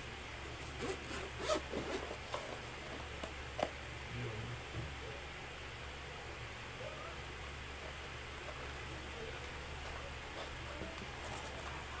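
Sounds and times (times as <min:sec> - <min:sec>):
zipper being pulled open: 0:00.7 - 0:02.4.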